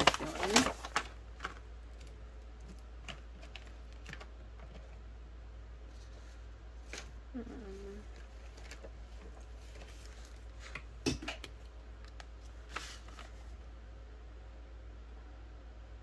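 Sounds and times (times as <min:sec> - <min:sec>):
paper rustling on table: 0:00.0 - 0:05.0, 0:05.8 - 0:07.2, 0:07.9 - 0:11.0, 0:12.1 - 0:13.6.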